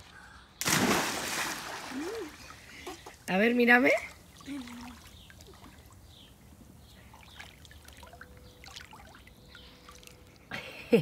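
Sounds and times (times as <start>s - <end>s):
pool water lapping and trickling: 0.0s - 11.0s
water drips: 7.0s - 10.5s.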